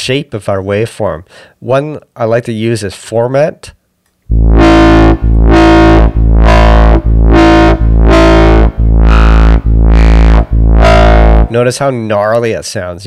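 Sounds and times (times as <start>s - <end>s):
distorted synth bass note: 4.3s - 11.7s.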